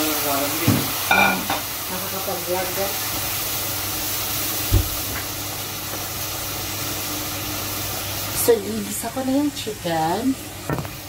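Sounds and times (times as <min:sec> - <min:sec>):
oil sizzling in a frying pan: 0:00.0 - 0:11.0
dull low thump: 0:04.7 - 0:05.1.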